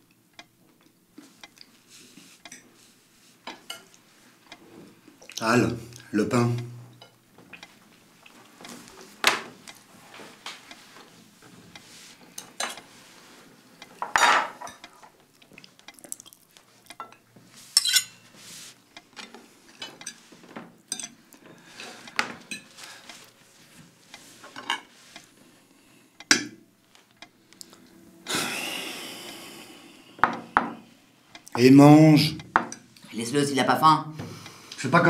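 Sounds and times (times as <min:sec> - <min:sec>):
cutlery clinking on plates: 0:14.0 - 0:14.9, 0:17.0 - 0:18.2, 0:20.9 - 0:21.2
cutlery scraping on plate: 0:17.0 - 0:18.3.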